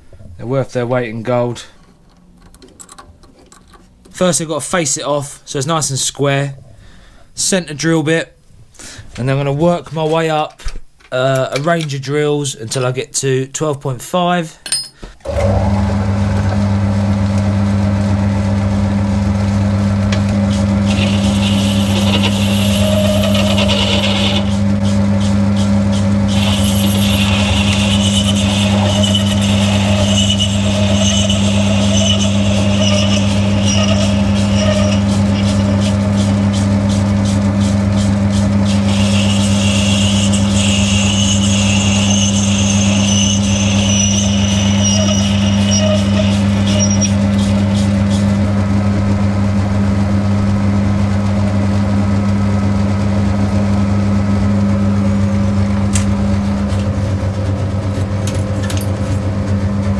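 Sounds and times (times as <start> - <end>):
metal lathe humming: 15.2 - 59.9
cutting tool scraping metal: 20.5 - 48.4.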